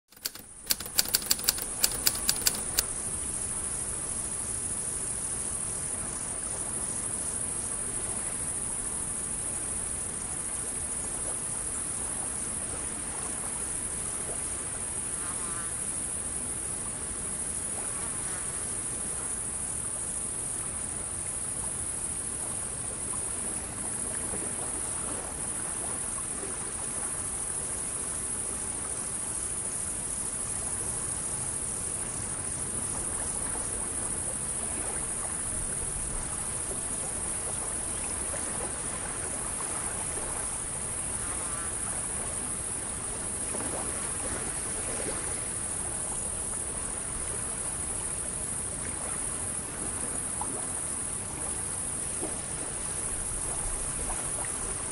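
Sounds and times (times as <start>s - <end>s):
sharp clicks: 0.0s - 2.9s
crickets and insects chirping: 27.1s - 54.9s.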